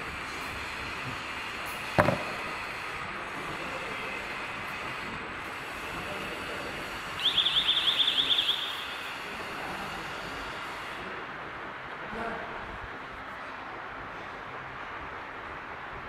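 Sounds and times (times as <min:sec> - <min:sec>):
conveyor machine hiss: 0:00.0 - 0:12.3
falling electronic alarm chirps: 0:07.2 - 0:09.0.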